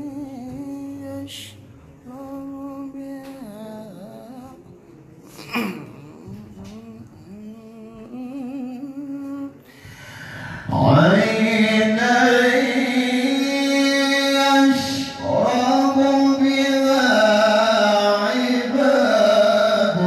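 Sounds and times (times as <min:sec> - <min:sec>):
man reciting melodically: 0:05.8 - 0:20.0.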